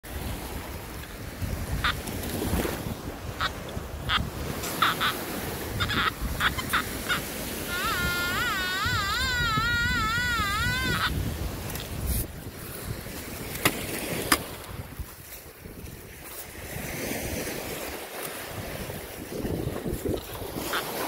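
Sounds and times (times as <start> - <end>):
metal detector warbling tone: 1.7 - 2.0, 3.3 - 11.2
metal detector short beeps: 4.1 - 5.2, 5.8 - 9.2.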